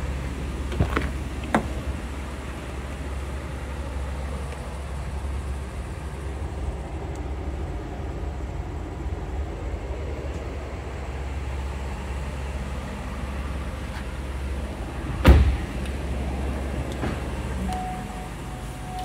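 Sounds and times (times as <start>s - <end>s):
steady low rumble: 0.0s - 19.0s
car door shutting: 0.6s - 1.8s, 15.2s - 15.9s, 16.8s - 18.0s.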